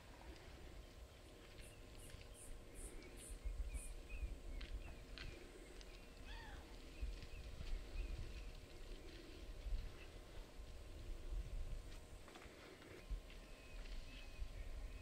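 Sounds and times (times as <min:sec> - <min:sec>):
birds chirping: 0:00.3 - 0:10.2.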